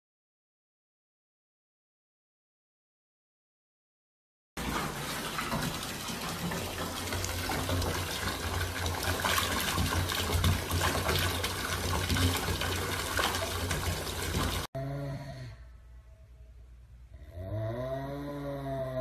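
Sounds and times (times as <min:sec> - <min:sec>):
tap water gushing into bath: 0:04.6 - 0:14.7.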